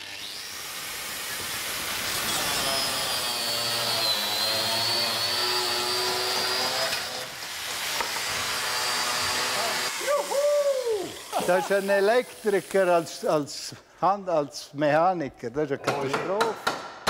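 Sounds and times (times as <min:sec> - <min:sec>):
angle grinder grinding steel: 0:00.0 - 0:13.0.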